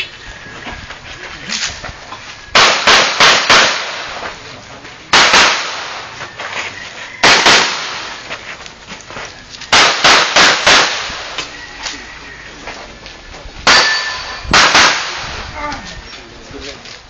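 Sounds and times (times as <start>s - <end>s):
pistol shots: 2.5s - 4.3s, 5.1s - 6.2s, 7.2s - 8.2s, 9.7s - 11.5s, 13.6s - 15.4s.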